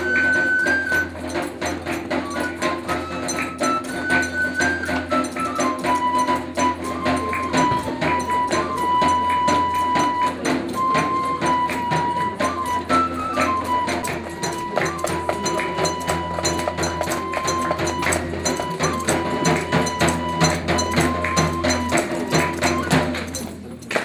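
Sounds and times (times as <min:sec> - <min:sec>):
hand percussion taps: 0:00.0 - 0:24.0
wooden flute melody: 0:00.0 - 0:24.0.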